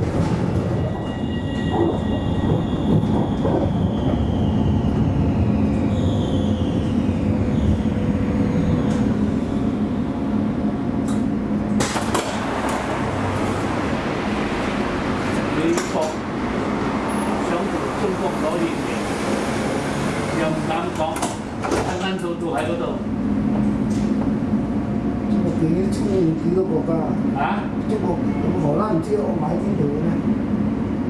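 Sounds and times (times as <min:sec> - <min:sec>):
tram rumbling on rails: 0:00.0 - 0:31.0.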